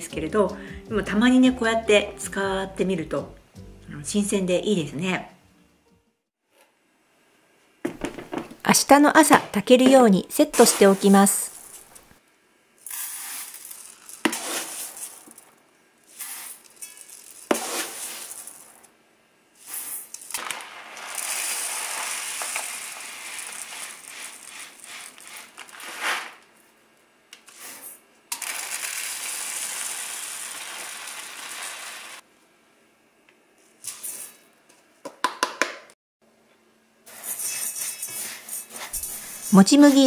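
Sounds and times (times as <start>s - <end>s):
grain pouring hiss: 10.6s - 12.0s, 12.8s - 18.8s, 19.6s - 26.4s, 27.5s - 32.2s, 37.1s - 40.0s
rice rattling into metal pot: 12.8s - 15.4s, 16.2s - 18.7s, 19.8s - 26.4s, 28.3s - 32.2s.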